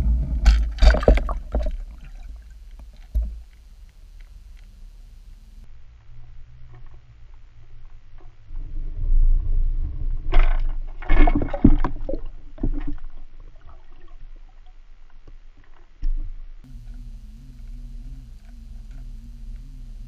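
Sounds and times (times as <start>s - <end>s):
underwater gurgling splashes: 0.0s - 3.4s
wavering low hum: 0.0s - 7.8s, 16.7s - 20.0s
underwater low rumble: 0.0s - 20.0s.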